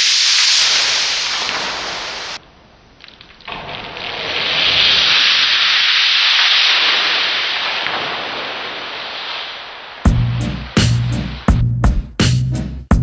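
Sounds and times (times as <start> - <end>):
sand pouring off a board: 0.0 - 2.4, 3.0 - 10.1.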